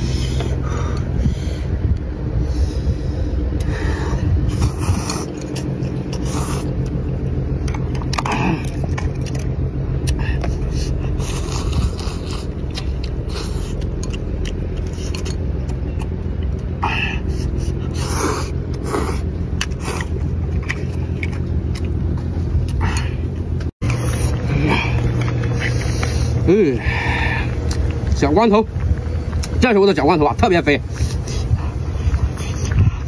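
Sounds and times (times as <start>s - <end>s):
low mechanical hum: 0.0s - 33.0s
person slurping noodles: 4.5s - 6.8s, 10.4s - 13.9s
chewing: 4.5s - 28.2s, 30.8s - 33.0s.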